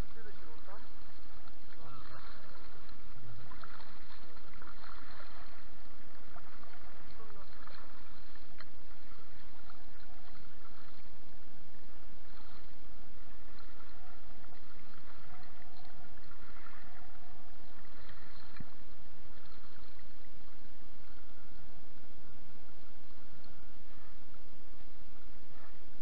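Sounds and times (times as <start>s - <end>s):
water slapping inflatable boat: 0.0s - 11.4s, 12.2s - 20.6s.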